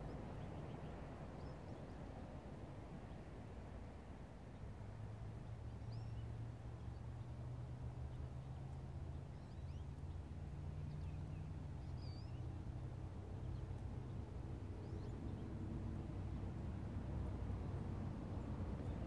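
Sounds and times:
small birds chirping: 0:05.4 - 0:07.3, 0:08.0 - 0:16.3.

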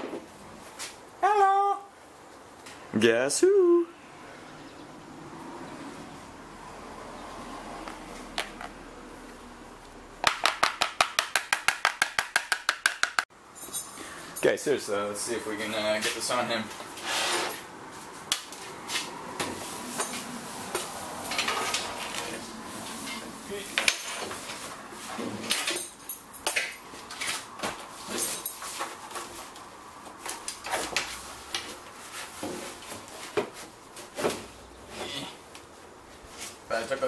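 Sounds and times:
metal frame clinking and rattling: 0:13.6 - 0:14.5, 0:23.8 - 0:24.6, 0:25.4 - 0:27.4, 0:28.0 - 0:28.8.

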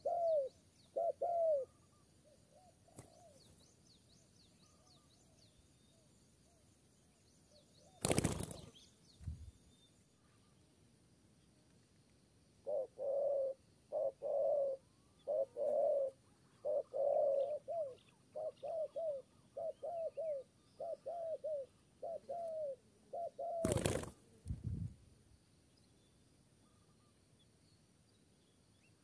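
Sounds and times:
dove cooing: 0:00.0 - 0:01.9, 0:12.6 - 0:24.2.

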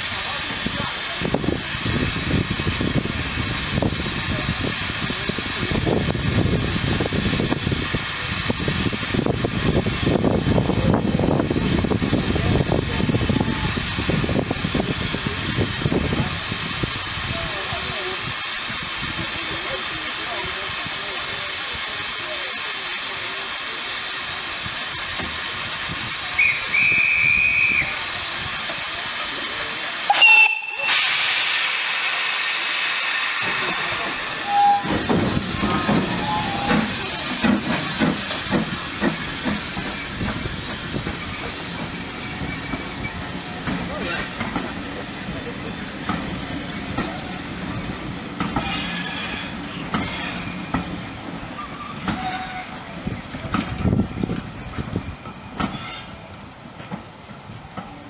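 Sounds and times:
steam locomotive hissing: 0:00.0 - 0:58.0
steam whistle: 0:26.4 - 0:28.0, 0:30.1 - 0:31.5, 0:34.4 - 0:35.0
high-pitched wheel squeal: 0:51.6 - 0:52.8, 0:55.7 - 0:56.2.

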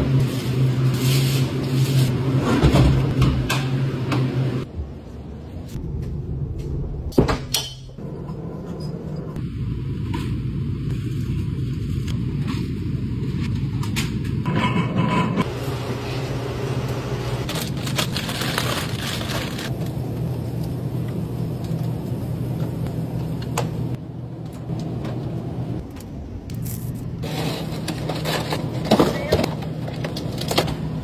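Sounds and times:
refrigerated cases humming: 0:15.5 - 0:31.0.

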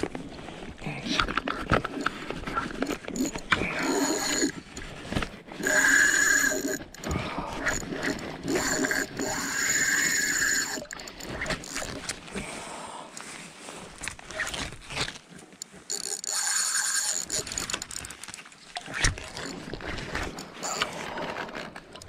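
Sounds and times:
rod handling knocks and clicks: 0:01.2 - 0:12.2, 0:15.6 - 0:22.0
fishing reel whirring and clicking: 0:01.7 - 0:04.8, 0:05.6 - 0:12.2, 0:15.6 - 0:22.0.

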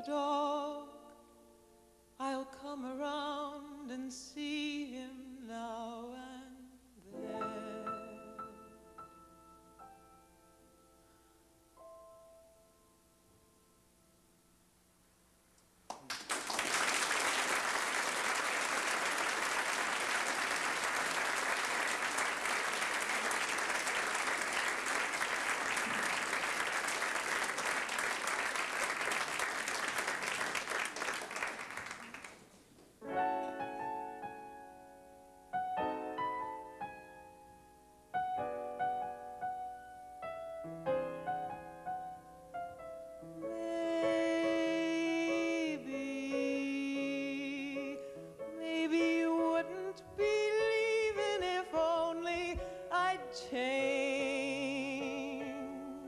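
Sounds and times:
grand piano slow chords: 0:00.0 - 0:14.6, 0:33.0 - 0:56.0
audience applauding: 0:15.9 - 0:32.6.

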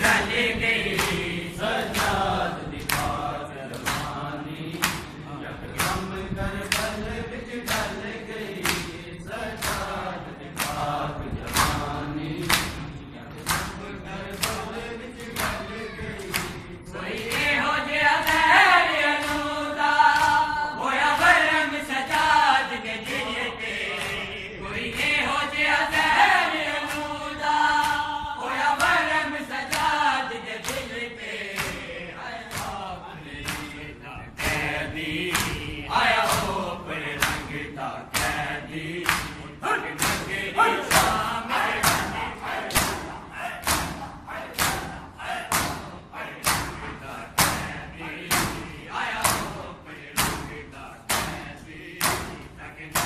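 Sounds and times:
men chanting: 0:00.0 - 0:53.0
hands slapping chests: 0:00.9 - 0:01.3, 0:02.8 - 0:05.1, 0:08.6 - 0:08.9, 0:09.6 - 0:10.0, 0:10.6 - 0:10.9, 0:11.5 - 0:12.8, 0:13.4 - 0:14.6, 0:16.2 - 0:16.6, 0:19.2 - 0:19.5, 0:29.7 - 0:30.0, 0:30.6 - 0:30.8, 0:31.6 - 0:31.8, 0:33.4 - 0:33.8, 0:35.3 - 0:35.6, 0:38.1 - 0:38.4, 0:39.0 - 0:39.4, 0:40.0 - 0:41.2, 0:41.8 - 0:49.6, 0:50.2 - 0:50.5.

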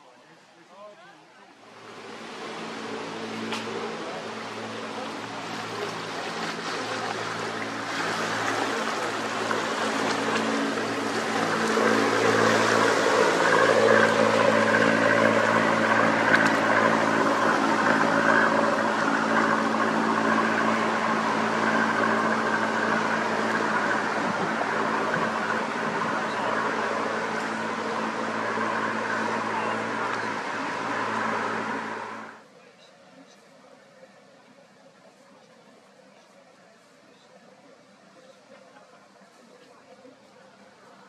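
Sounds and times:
hull wash through water: 0:00.0 - 0:32.6
boat engine running: 0:01.5 - 0:32.5.

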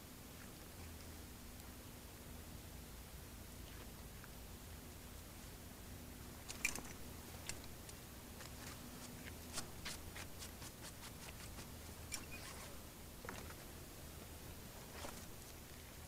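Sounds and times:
low background hum: 0:00.0 - 0:16.0
rope clicks and scuffs: 0:06.4 - 0:13.6.

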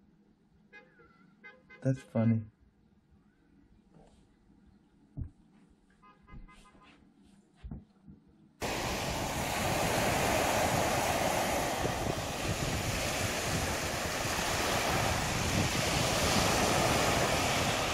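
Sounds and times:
ocean waves on beach: 0:08.6 - 0:17.9
wind on microphone: 0:08.6 - 0:17.9.

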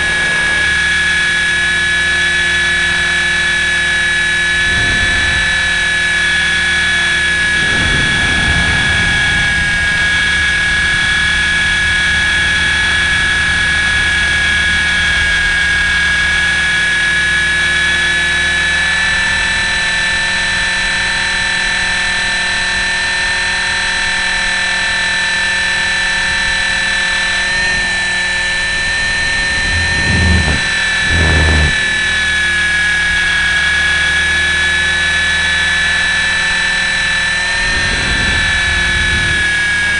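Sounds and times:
helicopter rotor hum: 0:00.0 - 0:20.5, 0:26.6 - 0:39.9
electric motor whine: 0:00.0 - 0:22.5, 0:24.0 - 0:39.9
short low bumps: 0:04.4 - 0:13.6, 0:28.4 - 0:33.5.

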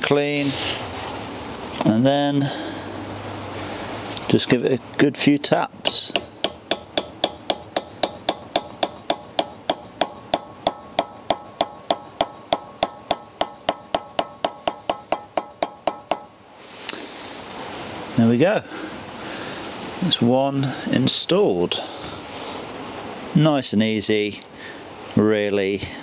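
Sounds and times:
hammer tapping metal socket: 0:05.9 - 0:16.3.

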